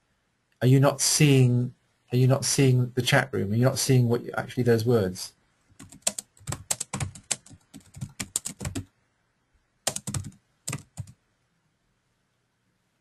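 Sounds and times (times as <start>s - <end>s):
typing on computer keyboard: 5.8s - 8.9s, 9.9s - 11.2s.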